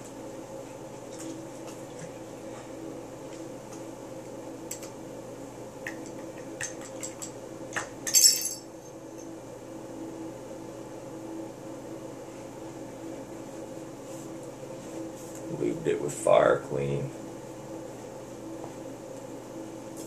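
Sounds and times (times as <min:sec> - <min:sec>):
steady background hum: 0:00.0 - 0:20.0
small metal parts clinking: 0:08.1 - 0:08.6.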